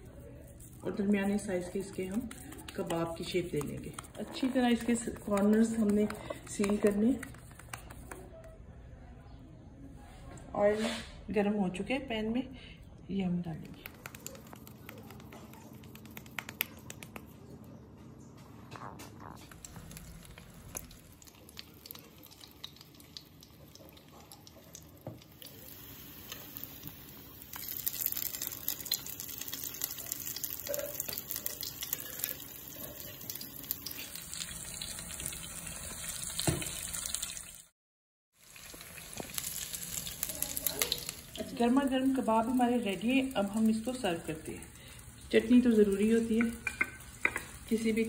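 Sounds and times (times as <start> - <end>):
food sizzling in hot oil: 19.6 - 37.7, 38.3 - 48.0.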